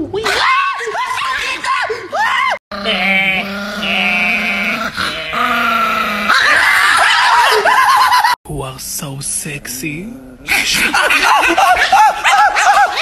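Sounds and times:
dog howling: 0:02.8 - 0:08.4, 0:11.4 - 0:13.0
loud rough howl: 0:02.8 - 0:08.4.

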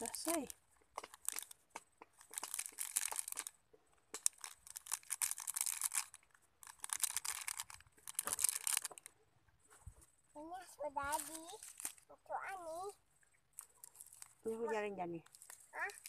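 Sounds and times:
plastic packaging crinkling: 0:00.0 - 0:09.2, 0:11.1 - 0:12.1, 0:13.5 - 0:16.0.

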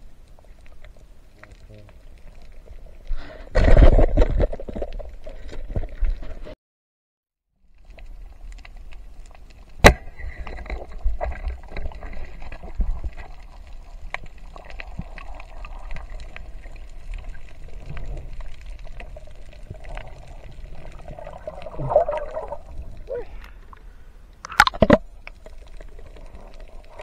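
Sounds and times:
underwater clicks and crackles: 0:00.0 - 0:06.6, 0:07.7 - 0:27.0
underwater rumble of water: 0:07.6 - 0:27.0
bubbling gurgle: 0:09.7 - 0:27.0.

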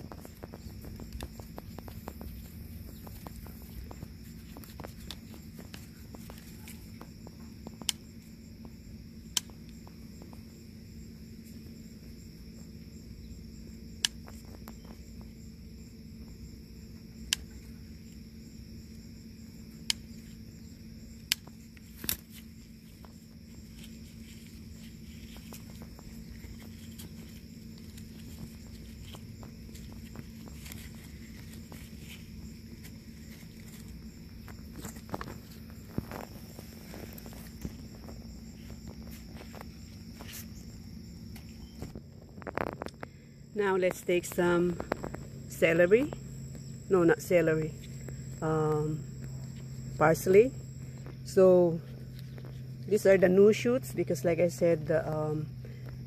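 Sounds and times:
insects chirring: 0:00.0 - 0:56.0
garden scissors snipping stems: 0:07.7 - 0:08.1, 0:17.2 - 0:17.6, 0:21.0 - 0:37.9.

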